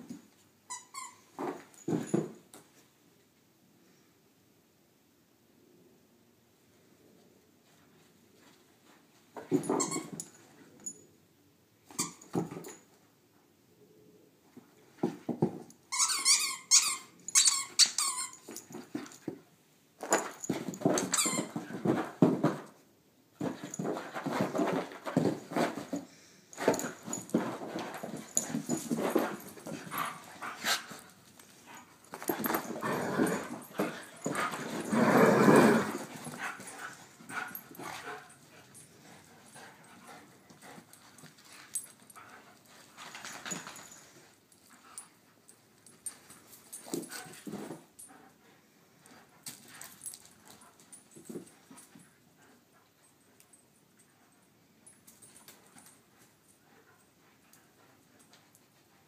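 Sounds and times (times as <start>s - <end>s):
dog play sounds: 0.0s - 2.8s, 7.6s - 11.1s, 11.8s - 13.0s, 14.4s - 59.0s
dog scuffling on carpet: 23.4s - 38.3s.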